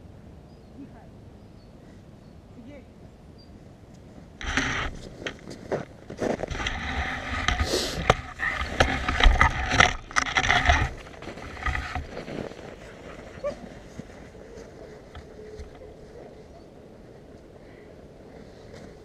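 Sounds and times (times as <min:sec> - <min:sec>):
vehicle rumbling and rattling: 0:04.4 - 0:15.8
clicks and knocks: 0:06.5 - 0:12.2.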